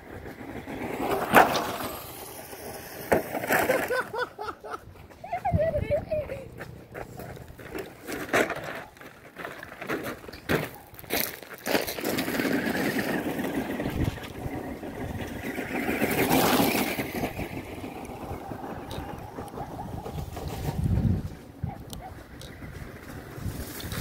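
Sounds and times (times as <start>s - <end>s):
tyres crunching gravel: 0.0s - 5.7s, 6.3s - 24.0s
toy car motor whining: 1.2s - 4.0s
gravel crunches and knocks: 7.0s - 14.4s.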